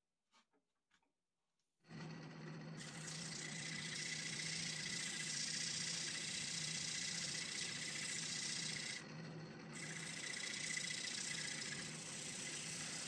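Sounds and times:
wood lathe humming: 2.0s - 13.0s
sandpaper hissing on spinning wood: 2.8s - 9.0s, 9.8s - 13.0s.

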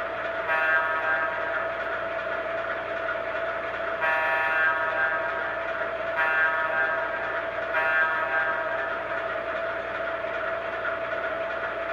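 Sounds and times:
model train running on track: 0.0s - 11.9s
electronic train horn blasts: 0.4s - 1.6s, 4.0s - 9.0s.

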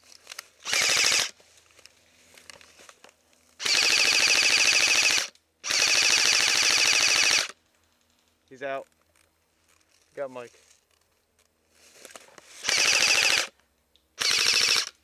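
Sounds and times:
airsoft rifle firing full auto: 0.6s - 1.4s, 3.6s - 7.6s, 12.6s - 13.5s, 14.2s - 15.0s.

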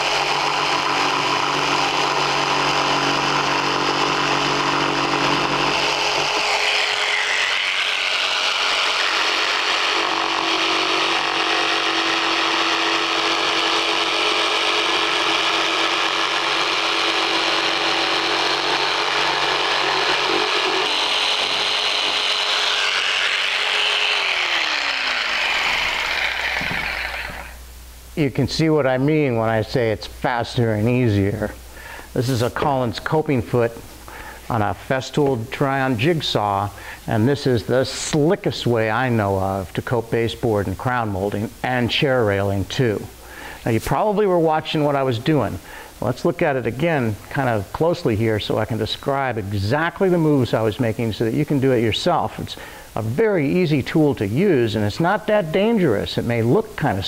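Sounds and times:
jigsaw sawing wood: 0.0s - 27.6s
motor winding down: 0.0s - 27.6s.

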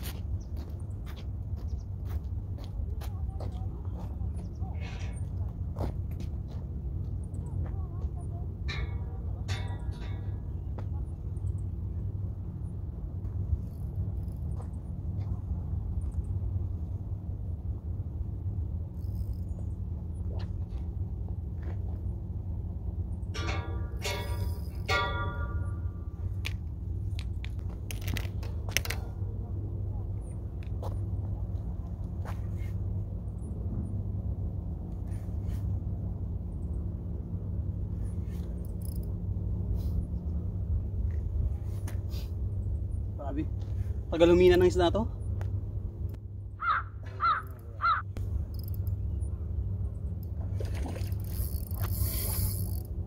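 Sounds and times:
steady low rumble: 0.0s - 53.0s
bird calling: 46.6s - 48.1s.

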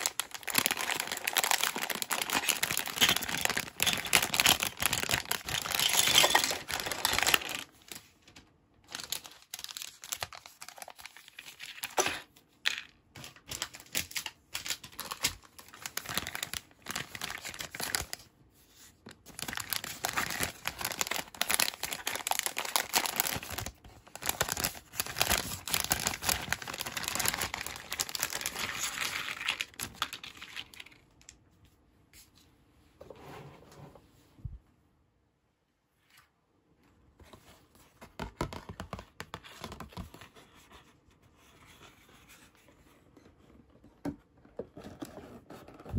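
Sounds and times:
plastic bags crinkling: 0.0s - 12.3s, 13.2s - 18.3s, 19.2s - 31.1s.

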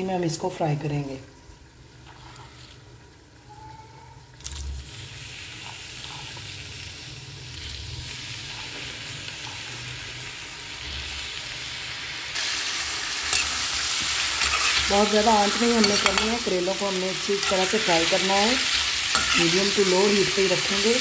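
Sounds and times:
vegetables sizzling in hot oil: 4.3s - 21.0s
metal spatula stirring: 13.2s - 20.4s.

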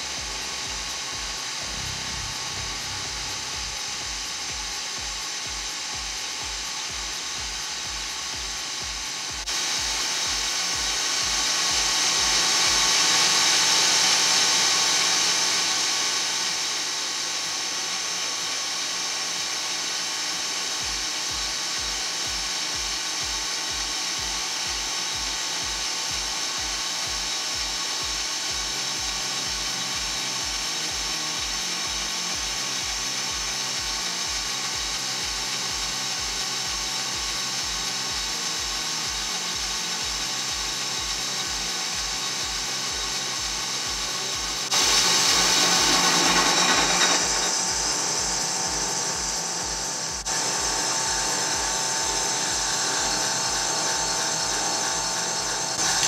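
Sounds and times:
even low pulse: 0.0s - 6.2s
cutting bits hissing on metal: 0.0s - 56.0s.

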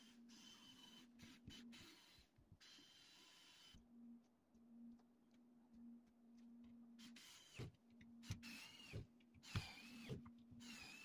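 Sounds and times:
cordless screwdriver motor whirring: 7.0s - 11.0s.

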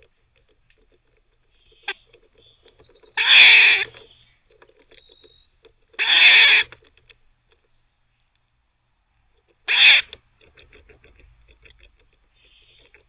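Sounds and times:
squirrel gnawing: 0.0s - 13.0s
squirrel barking: 1.6s - 4.2s, 6.0s - 6.8s, 9.7s - 10.2s.

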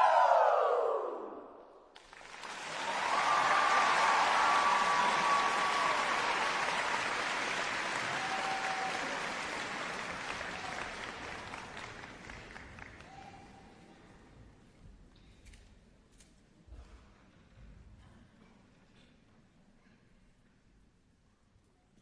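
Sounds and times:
audience applauding: 2.0s - 13.5s.

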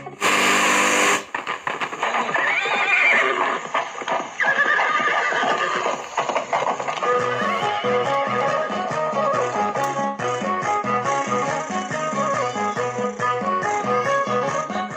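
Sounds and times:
radio static hiss: 0.0s - 7.0s
radio tuning whines: 0.0s - 8.0s
music from radio: 0.0s - 14.9s.

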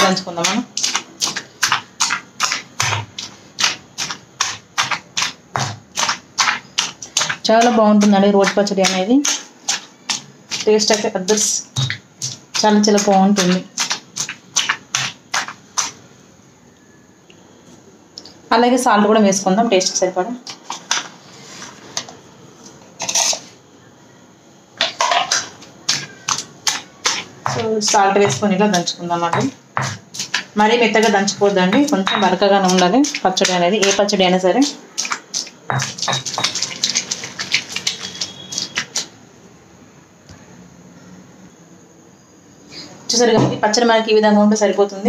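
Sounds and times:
stone pestle pounding in mortar: 0.0s - 16.0s, 24.9s - 39.0s.

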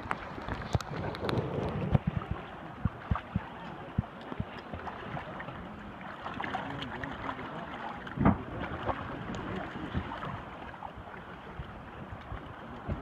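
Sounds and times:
water splashing and sloshing: 0.0s - 13.0s.

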